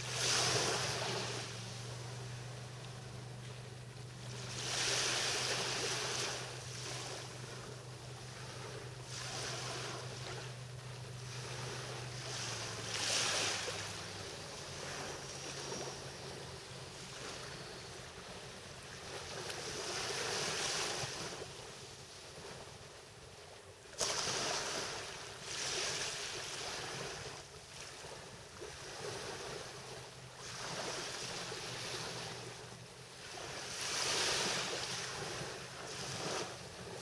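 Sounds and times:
low steady hum: 0:00.0 - 0:25.3
small waves washing up beach: 0:00.0 - 0:37.0.

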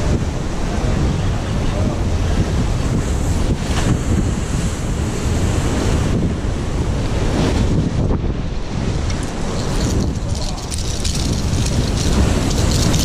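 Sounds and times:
wind buffeting microphone: 0:00.0 - 0:13.0
surf breaking against concrete: 0:09.0 - 0:13.0.

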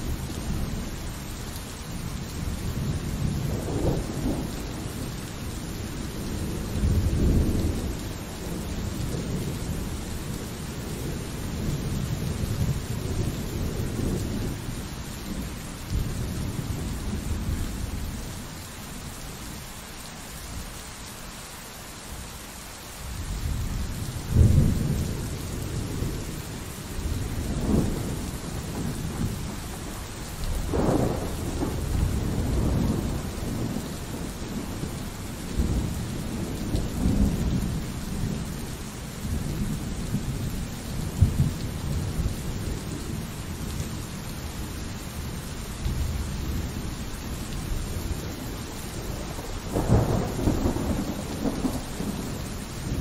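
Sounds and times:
pouring rain: 0:00.0 - 0:53.0
rolling thunder: 0:02.4 - 0:05.6, 0:23.2 - 0:38.6, 0:39.2 - 0:43.8, 0:47.6 - 0:53.0.

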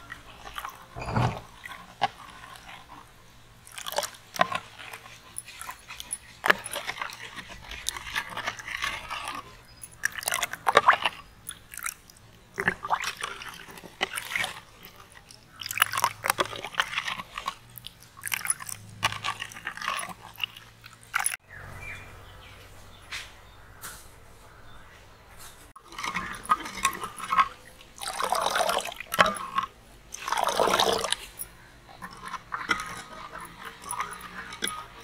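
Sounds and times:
spoons stirring in glass bowls: 0:00.0 - 0:21.4, 0:25.7 - 0:35.0
spoons clinking against glass: 0:31.0 - 0:35.0.

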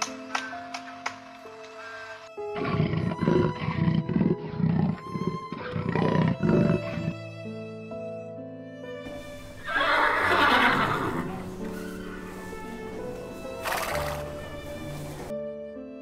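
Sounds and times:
soft background music: 0:00.0 - 0:16.0
big cat growling: 0:02.5 - 0:07.2.

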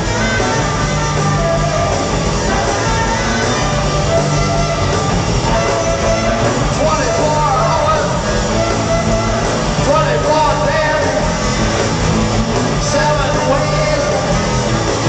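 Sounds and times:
live rock band playing: 0:00.0 - 0:15.0
person singing: 0:05.4 - 0:08.7, 0:09.4 - 0:11.4, 0:12.7 - 0:14.6.

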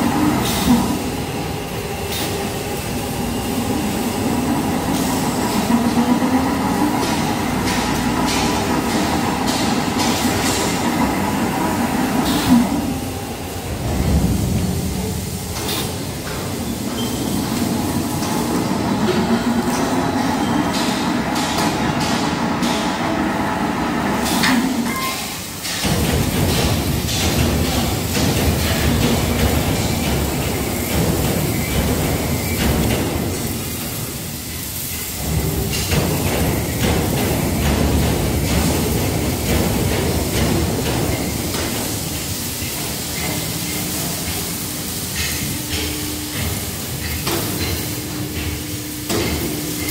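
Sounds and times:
machinery humming and rumbling: 0:00.0 - 0:49.9
mechanical ticking and clanking: 0:25.6 - 0:34.1, 0:34.9 - 0:49.9.

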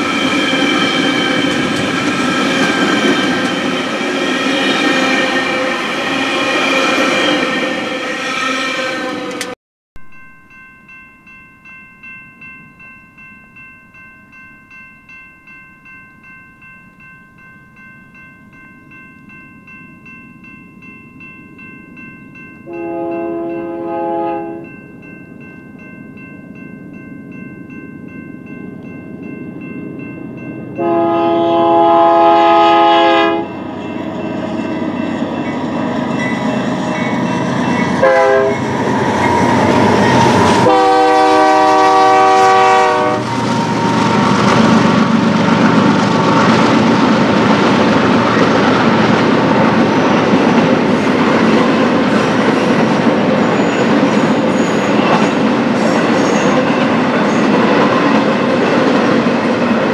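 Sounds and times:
train wheels clickety-clack: 0:00.0 - 0:07.4, 0:43.1 - 0:59.9
locomotive horn blasts: 0:22.7 - 0:24.7, 0:30.8 - 0:33.6, 0:38.0 - 0:38.6, 0:40.3 - 0:43.4.

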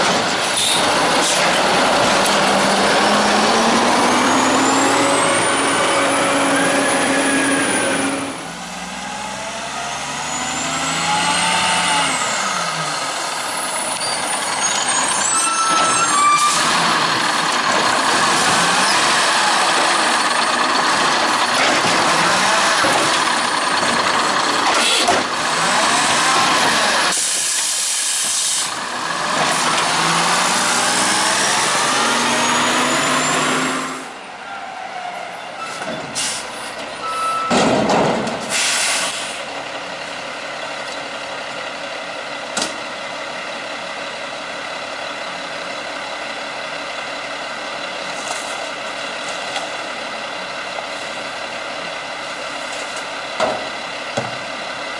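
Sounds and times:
garbage truck diesel engine revving: 0:00.0 - 0:15.8, 0:16.4 - 0:27.8, 0:28.6 - 0:34.2
air brake hiss: 0:27.1 - 0:28.7, 0:36.2 - 0:36.6, 0:38.4 - 0:39.5.

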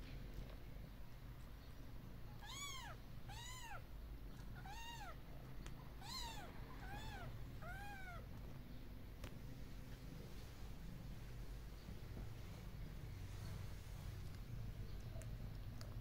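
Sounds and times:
kittens mewing: 0:02.4 - 0:08.4.

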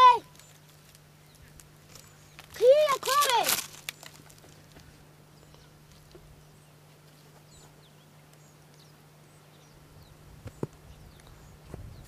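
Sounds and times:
steady low hum: 0:00.0 - 0:12.0
bird chirps: 0:05.3 - 0:12.0.

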